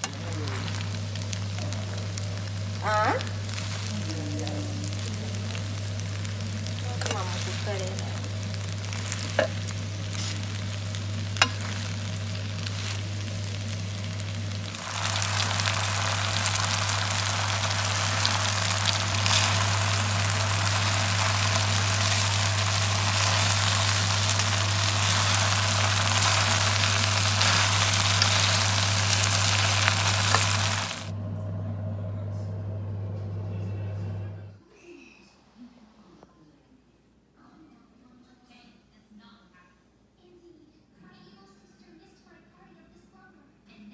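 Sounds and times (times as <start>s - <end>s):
food sizzling in a frying pan: 0.0s - 31.2s
low hum: 0.0s - 34.6s.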